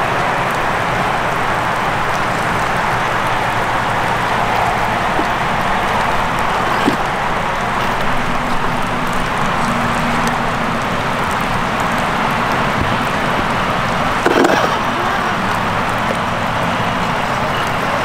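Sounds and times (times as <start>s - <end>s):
rain: 0.0s - 18.0s
stream water rushing: 0.0s - 18.0s.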